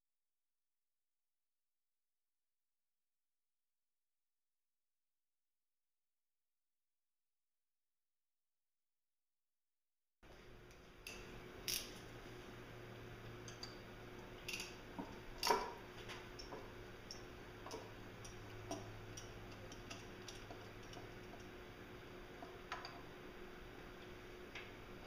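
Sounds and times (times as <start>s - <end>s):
low steady hum: 10.2s - 25.0s
wrench clicking on bolts: 14.4s - 14.8s.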